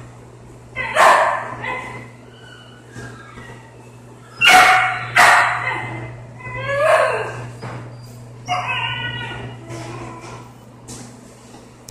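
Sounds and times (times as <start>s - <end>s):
steady low hum: 0.0s - 11.9s
puppy barking: 0.8s - 2.2s, 4.4s - 7.5s
puppy yelping: 0.8s - 10.4s.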